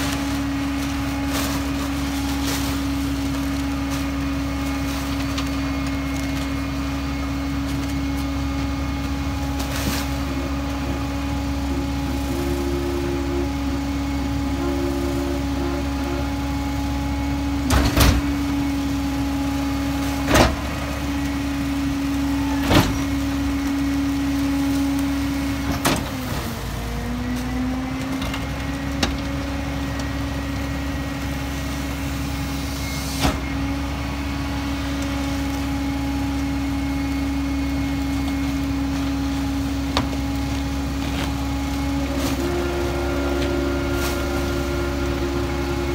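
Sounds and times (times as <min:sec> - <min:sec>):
bags thudding into hopper: 0:00.0 - 0:06.8, 0:07.6 - 0:26.6, 0:39.3 - 0:45.9
garbage truck engine hum: 0:00.0 - 0:45.9.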